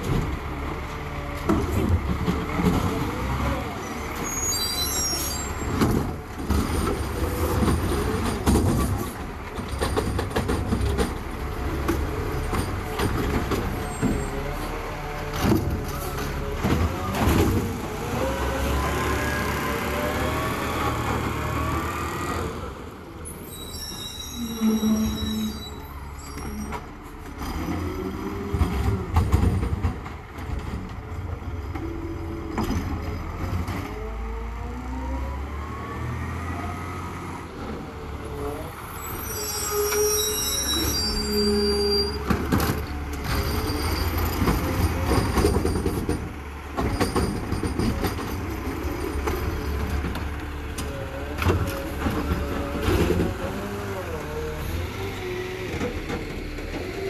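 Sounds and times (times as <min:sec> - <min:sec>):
garbage truck engine rumbling: 0:00.0 - 0:57.0
high-pitched squeals: 0:03.9 - 0:05.7, 0:23.4 - 0:26.9, 0:38.8 - 0:42.3.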